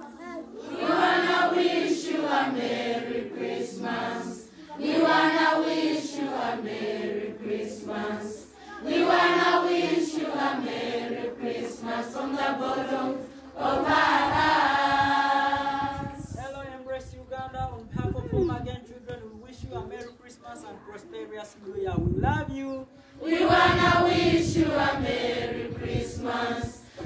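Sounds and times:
children singing in unison: 0:00.6 - 0:16.3, 0:23.2 - 0:27.0.

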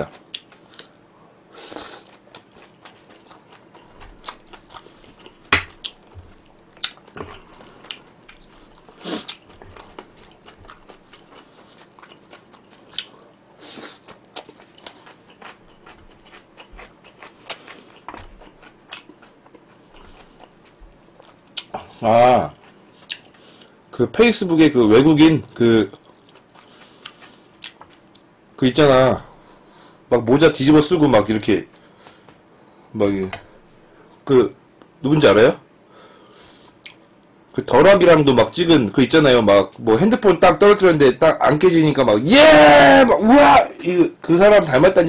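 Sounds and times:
person chewing food: 0:00.1 - 0:23.8, 0:25.5 - 0:28.3, 0:36.3 - 0:37.1.

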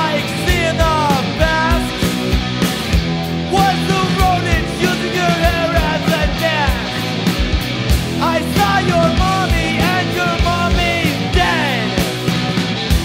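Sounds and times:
bass chords: 0:00.0 - 0:13.0
bending lead guitar line: 0:00.0 - 0:13.0
distorted electric guitar: 0:00.0 - 0:13.0
steady drum beat: 0:00.0 - 0:13.0.

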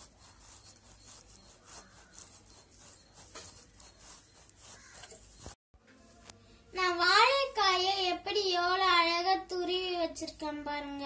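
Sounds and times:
grater rasping scrape: 0:00.0 - 0:05.6.

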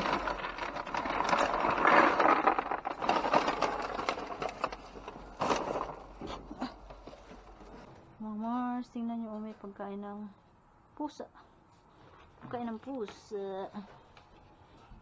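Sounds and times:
plastic bags and cardboard rustling: 0:00.0 - 0:08.0.

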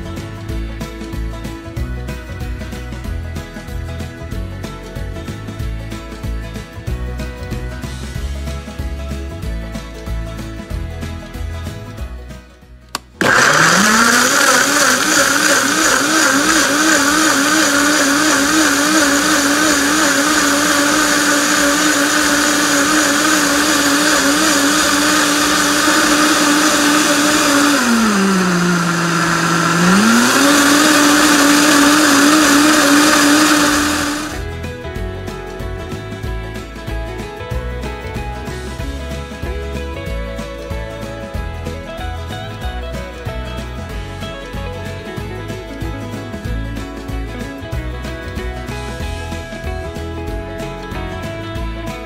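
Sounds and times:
blender motor running: 0:13.0 - 0:34.6.

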